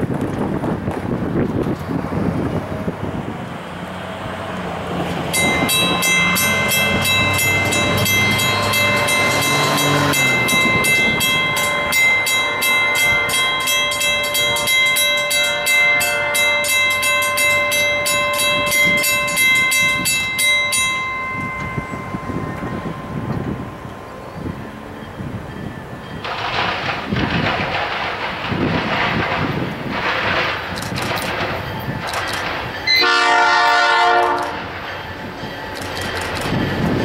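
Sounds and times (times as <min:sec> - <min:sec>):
railroad crossing bell ringing: 0:05.2 - 0:27.2, 0:31.4 - 0:37.0.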